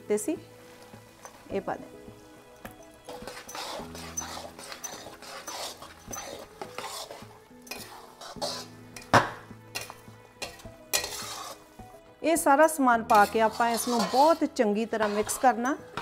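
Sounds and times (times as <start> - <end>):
spoon scraping and stirring in pan: 0.6 - 1.5, 2.5 - 12.0, 13.0 - 16.0
spoon knocking against pan: 9.0 - 11.2.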